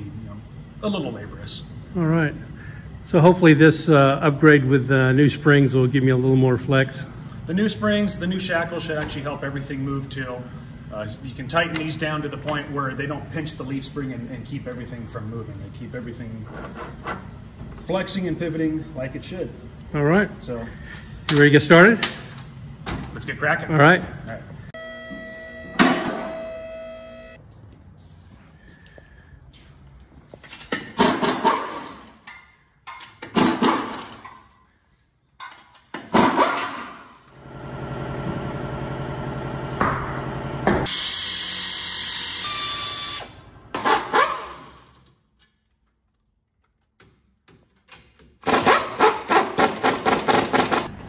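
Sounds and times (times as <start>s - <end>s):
pneumatic impact wrench hammering: 30.8s - 32.1s, 35.9s - 37.1s, 40.6s - 45.0s, 48.2s - 50.9s.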